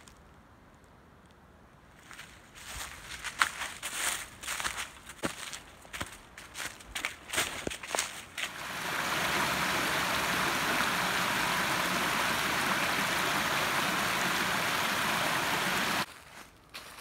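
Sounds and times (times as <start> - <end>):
water rushing over rock ledges: 8.4 - 16.1.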